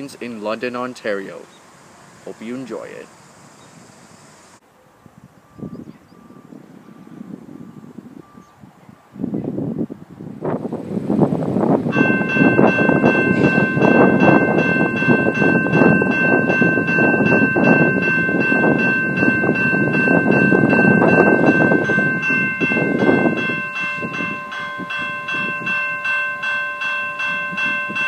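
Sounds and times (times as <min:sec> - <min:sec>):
level crossing bell ringing: 0:11.9 - 0:28.0
low steady tone: 0:11.9 - 0:28.0.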